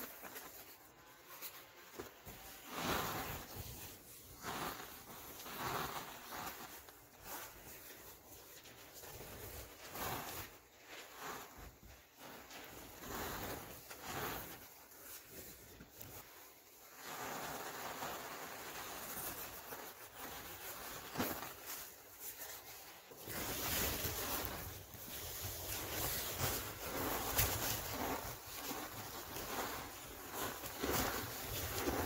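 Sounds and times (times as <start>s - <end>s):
powder pouring into plastic bin: 16.8s - 21.8s.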